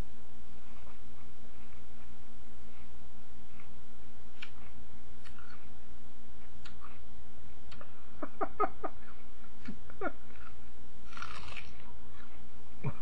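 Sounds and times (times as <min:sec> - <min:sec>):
biting into rhubarb stalk: 0:11.1 - 0:11.8.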